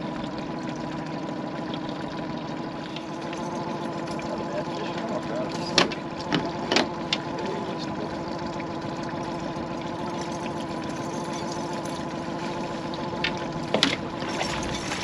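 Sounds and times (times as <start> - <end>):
outboard motor drone: 0.0 - 15.0.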